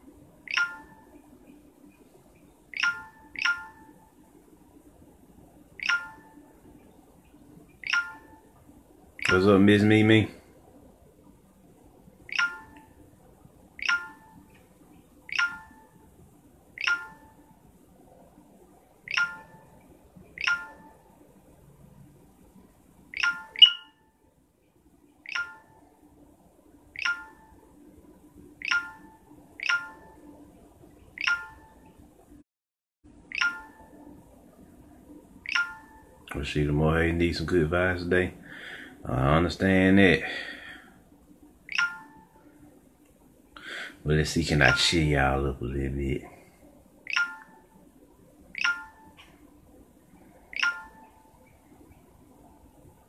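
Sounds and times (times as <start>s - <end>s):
faint room hum: 0.0s - 53.0s
phone notification pings: 0.5s - 1.2s, 2.7s - 4.0s, 5.8s - 6.4s, 7.8s - 8.5s, 12.3s - 12.9s, 13.8s - 14.4s, 15.3s - 16.0s, 16.8s - 17.4s, 19.1s - 19.7s, 20.4s - 21.0s, 23.1s - 24.1s, 25.3s - 25.8s, 27.0s - 27.6s, 28.6s - 30.3s, 31.2s - 31.8s, 33.3s - 34.1s, 35.4s - 36.1s, 41.7s - 42.3s, 47.1s - 47.6s, 48.6s - 49.2s, 50.5s - 51.2s.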